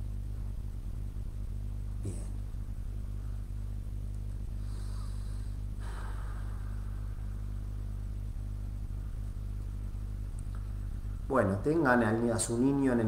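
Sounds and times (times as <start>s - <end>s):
steady low hum: 0.0s - 13.0s
soft breath: 4.4s - 7.9s.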